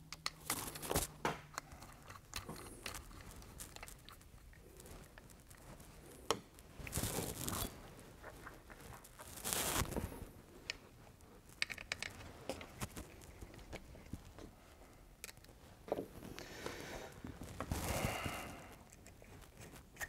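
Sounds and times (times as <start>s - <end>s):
light clicks and taps of tools: 0.0s - 0.6s.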